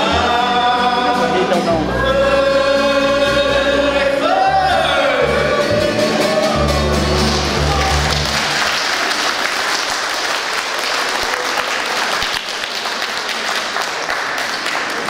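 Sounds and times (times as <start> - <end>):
congregation applauding: 6.0 - 15.0.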